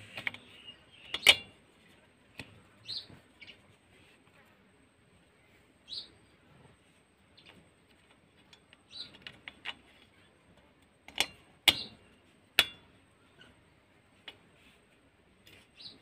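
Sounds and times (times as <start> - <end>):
metallic clicks and taps: 10.8 - 12.0, 12.6 - 12.9.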